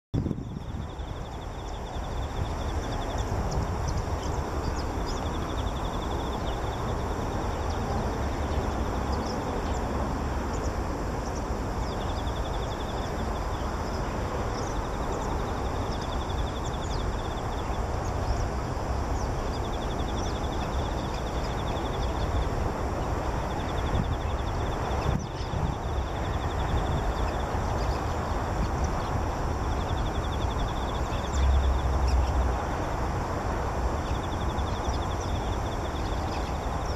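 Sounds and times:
bird chirping and trilling: 0.2s - 32.6s.

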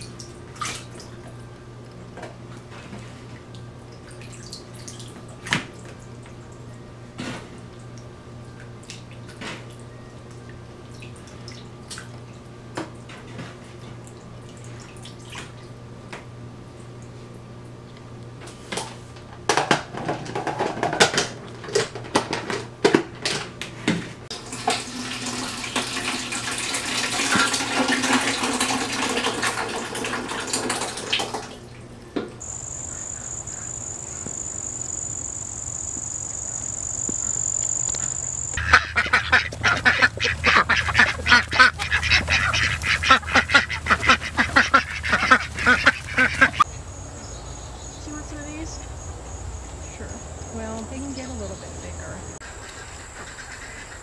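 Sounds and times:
high insect trill: 32.4s - 41.4s, 44.7s - 54.0s
rapid duck quacking: 38.6s - 46.6s.

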